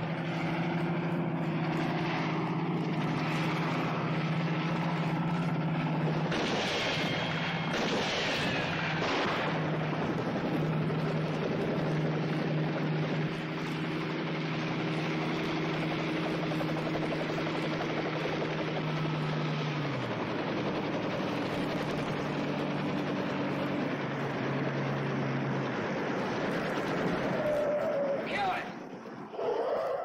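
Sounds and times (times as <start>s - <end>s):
helicopter engine and rotor drone: 0.0s - 30.0s
gunshots: 6.1s - 10.2s
falling ricochet whine: 6.3s - 9.8s.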